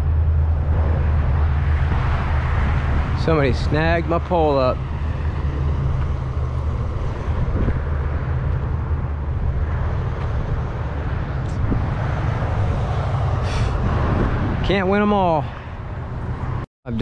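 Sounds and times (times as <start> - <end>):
road traffic rumble: 0.0 - 17.0.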